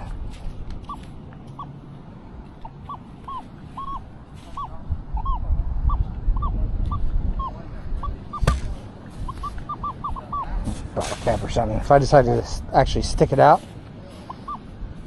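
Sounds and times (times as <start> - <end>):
low rumble: 0.0 - 11.4
metal detector chirping tones: 0.8 - 1.8, 2.6 - 8.5, 9.2 - 10.6.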